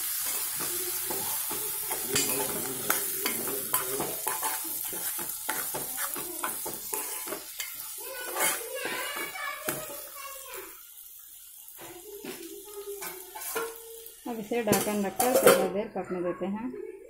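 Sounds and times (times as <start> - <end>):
vegetables sizzling in oil: 0.0 - 15.8
metal spoon scraping pot: 1.9 - 8.6, 13.0 - 13.8, 14.7 - 15.7.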